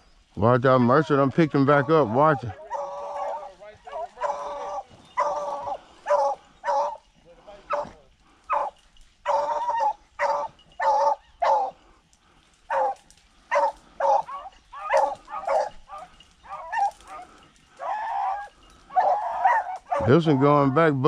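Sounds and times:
hounds barking: 0:00.8 - 0:21.0.

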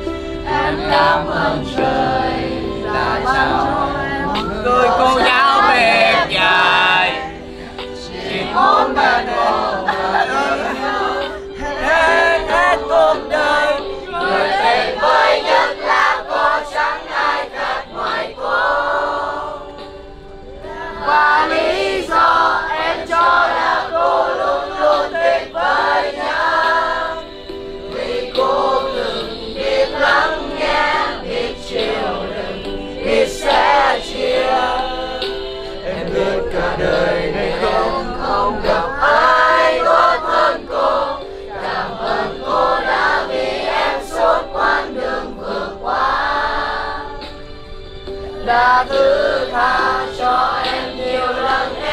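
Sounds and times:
group of voices singing: 0:00.0 - 0:51.9.

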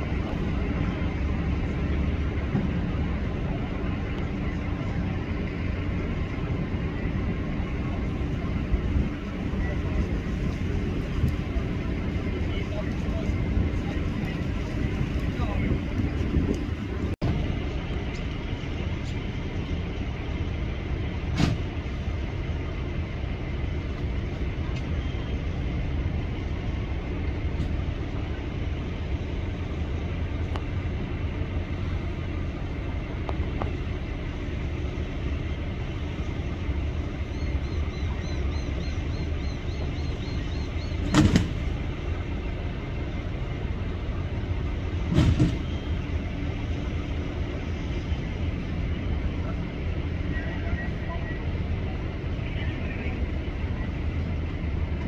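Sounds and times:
heavy diesel machinery running: 0:00.0 - 0:55.0.

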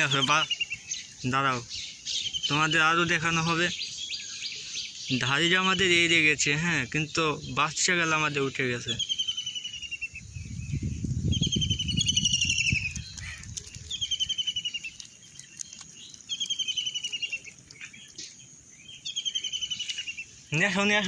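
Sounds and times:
bird trilling: 0:08.4 - 0:20.6
low rustling rumble: 0:10.2 - 0:14.3.

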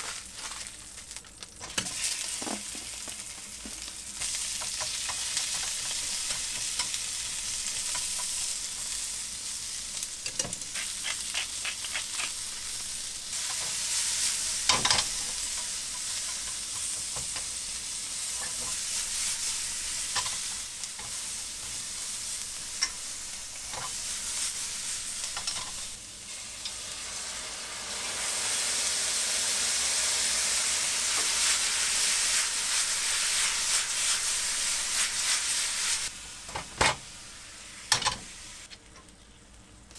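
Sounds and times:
onions sizzling in a frying pan: 0:00.0 - 0:39.9
utensils clicking against pan: 0:25.2 - 0:25.8.

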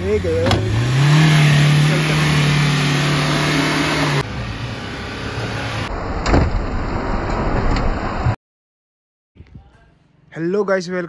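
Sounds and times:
car engine labouring: 0:00.0 - 0:08.2
car engine droning: 0:00.0 - 0:08.4.

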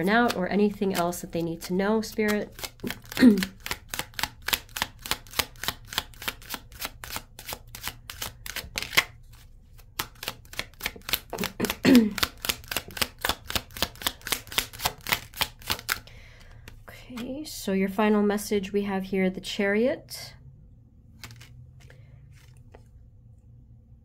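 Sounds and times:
cards being shuffled: 0:00.0 - 0:17.3, 0:21.1 - 0:23.0.

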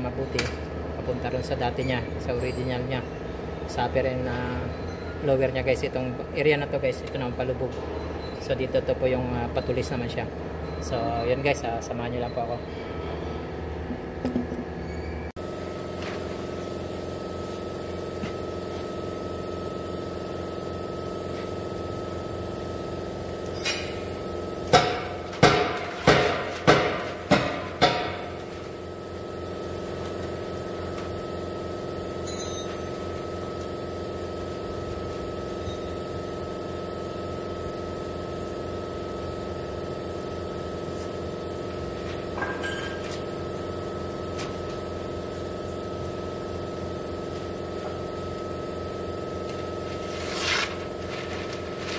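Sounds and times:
machine hum with high whine: 0:00.0 - 0:51.9
sharp ringing knocks: 0:24.7 - 0:28.3.

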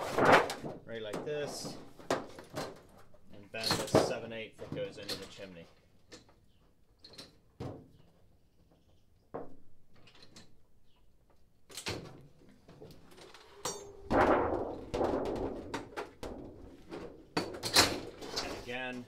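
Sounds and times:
sheet metal rattling: 0:13.4 - 0:18.7.

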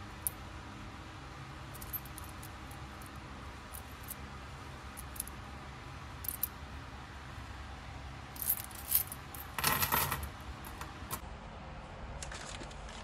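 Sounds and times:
coins clinking: 0:01.8 - 0:03.1, 0:08.4 - 0:10.9.

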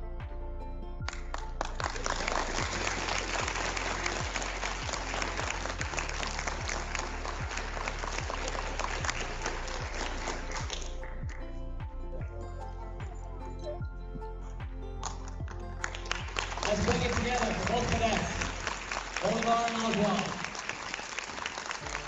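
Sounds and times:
background music with a beat: 0:00.0 - 0:22.0
audience applauding: 0:01.1 - 0:11.4, 0:15.0 - 0:22.0.

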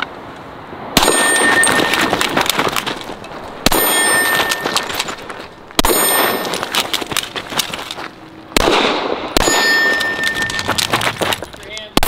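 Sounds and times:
echo with metallic ring: 0:01.0 - 0:02.2, 0:03.7 - 0:05.0, 0:05.8 - 0:06.7, 0:08.9 - 0:10.7
pistol shots: 0:01.0 - 0:02.4, 0:03.6 - 0:05.0, 0:05.8 - 0:07.0, 0:08.6 - 0:10.8.

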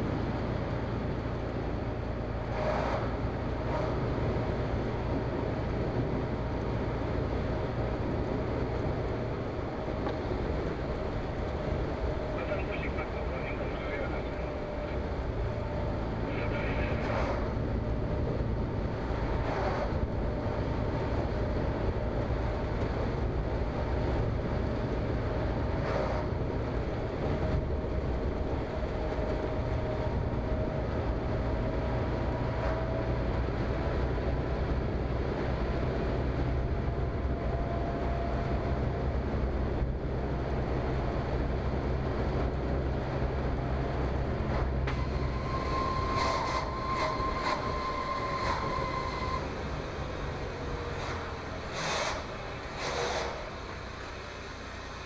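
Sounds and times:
engine drone and road noise: 0:00.0 - 0:55.0
higher whine: 0:44.5 - 0:54.3.

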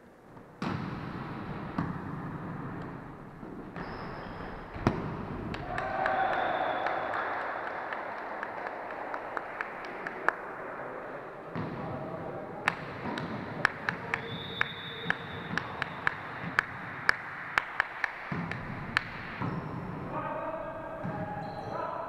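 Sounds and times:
sports hall background noise: 0:00.0 - 0:22.0
volleyball thuds: 0:00.4 - 0:05.8, 0:11.5 - 0:11.9, 0:18.2 - 0:20.1.

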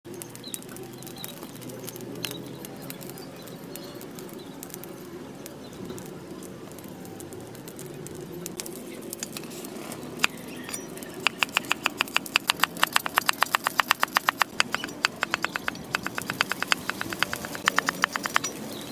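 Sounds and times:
faint clicks: 0:10.2 - 0:18.6
cleaver chopping on wooden block: 0:11.3 - 0:18.5.

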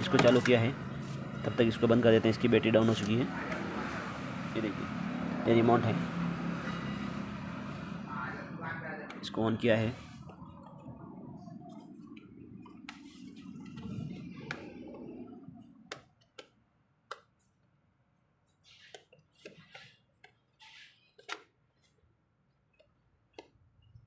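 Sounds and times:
faint clicks and taps: 0:15.8 - 0:17.5.

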